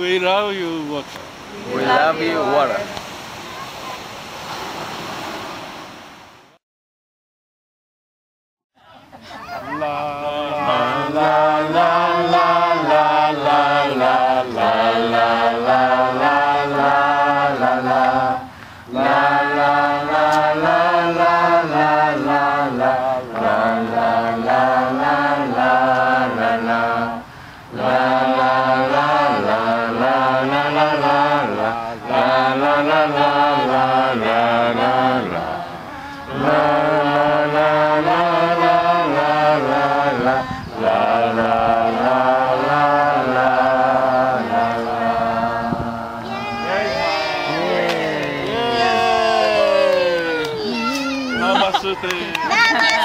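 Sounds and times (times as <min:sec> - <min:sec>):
group of voices chanting: 0:09.6 - 0:27.2, 0:27.8 - 0:51.6.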